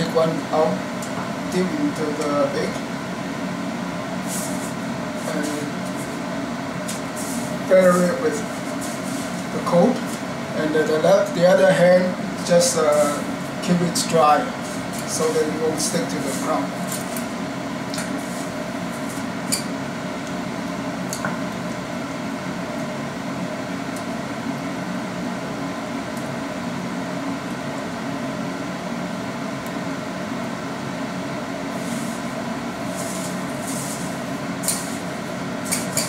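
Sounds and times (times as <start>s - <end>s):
appliance fan hum: 0.0s - 36.0s.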